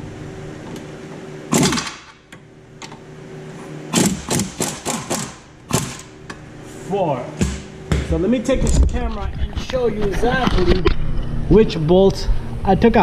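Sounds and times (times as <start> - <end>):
impact gun bursts: 1.5 - 2.2, 3.9 - 6.1.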